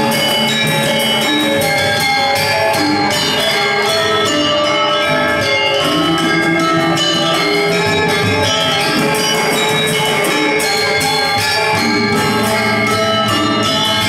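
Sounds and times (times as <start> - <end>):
gamelan dance music: 0.0 - 14.0.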